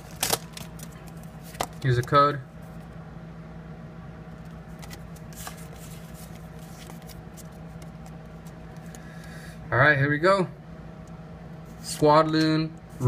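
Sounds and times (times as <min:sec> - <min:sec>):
trading cards rustling and clicking: 0:00.0 - 0:02.2, 0:04.4 - 0:09.1.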